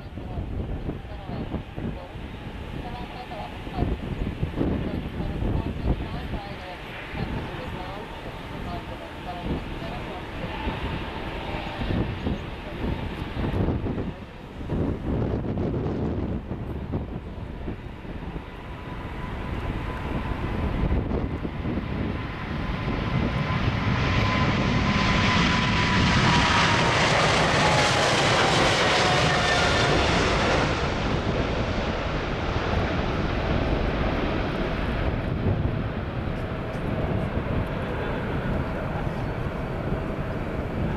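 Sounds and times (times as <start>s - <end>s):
jet engines roaring: 0.0s - 40.9s.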